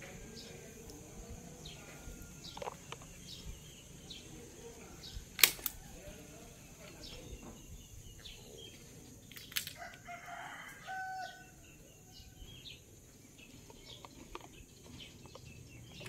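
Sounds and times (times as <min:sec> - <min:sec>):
sharp click: 0:05.4 - 0:05.8
rooster crowing: 0:09.7 - 0:12.6.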